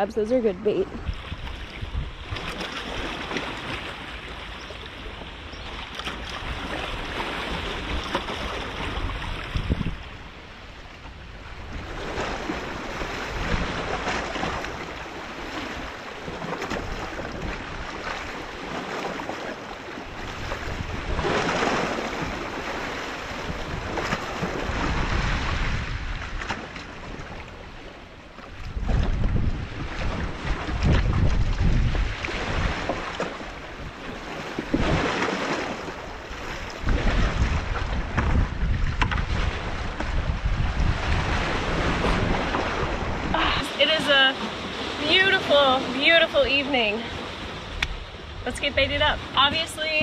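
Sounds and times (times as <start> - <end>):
wind buffeting microphone: 0.0 - 50.0
water moving against rocks: 28.5 - 50.0.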